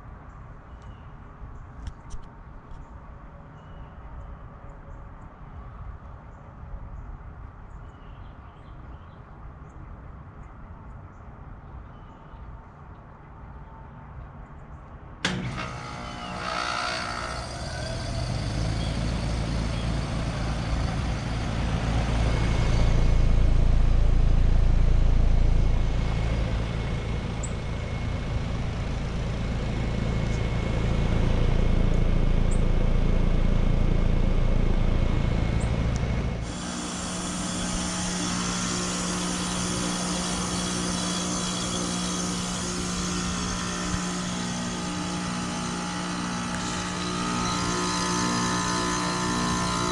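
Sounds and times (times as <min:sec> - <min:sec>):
compressor hum: 0:15.2 - 0:49.9
refrigerant hissing: 0:36.5 - 0:49.9.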